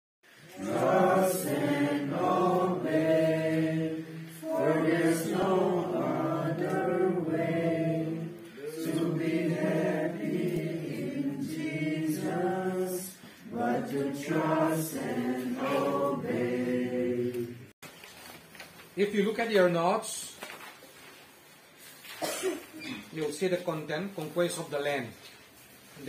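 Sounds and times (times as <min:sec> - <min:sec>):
group singing a slow hymn: 0:00.4 - 0:17.8.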